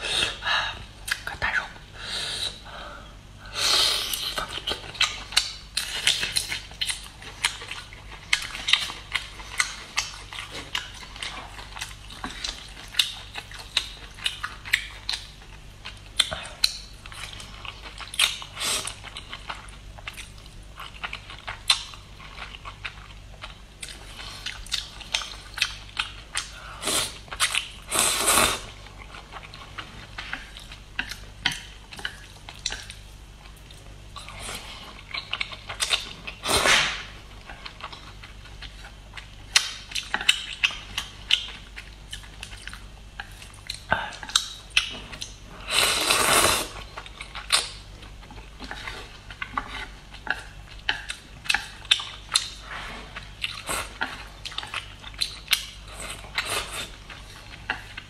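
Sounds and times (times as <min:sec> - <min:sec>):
noodle slurps: 0:45.7 - 0:46.8.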